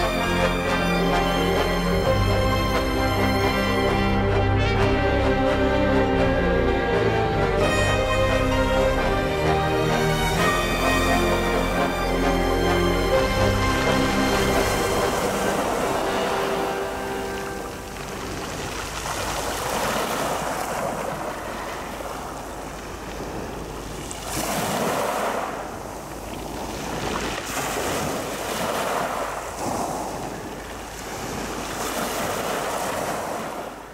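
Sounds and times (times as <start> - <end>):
waves washing over pebbles: 13.5 - 33.9.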